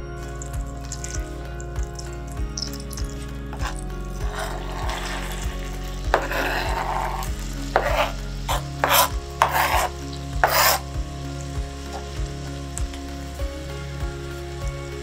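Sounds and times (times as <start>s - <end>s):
vegetables sizzling in butter: 0.2s - 15.0s
vegetables clattering into pan: 0.4s - 10.9s
knife scraping cutting board: 3.6s - 10.9s.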